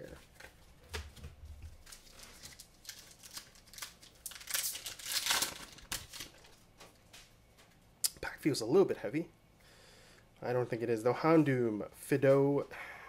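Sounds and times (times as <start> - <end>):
foil wrapper crinkling and tearing: 1.8 - 6.6.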